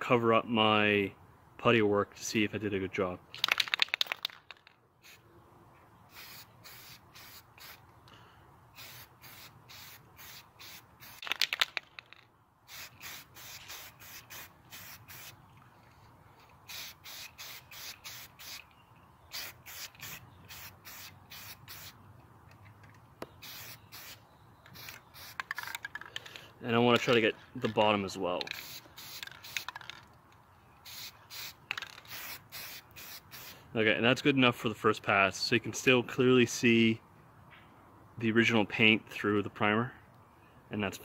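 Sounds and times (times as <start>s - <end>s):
aerosol spray can hissing: 6.1s - 7.8s, 8.8s - 11.4s, 12.7s - 15.4s, 16.7s - 18.6s, 19.3s - 22.0s, 23.4s - 24.2s, 24.8s - 25.4s, 28.5s - 29.6s, 30.9s - 33.5s.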